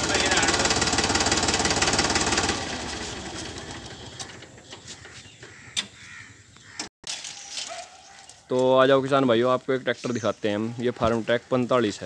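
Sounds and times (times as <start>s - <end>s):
tractor diesel engine running: 0.0s - 5.7s.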